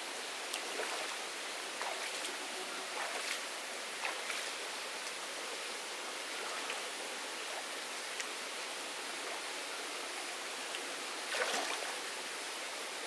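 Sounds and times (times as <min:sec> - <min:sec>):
stream flowing: 0:00.0 - 0:13.0
hands splashing water: 0:11.3 - 0:11.9.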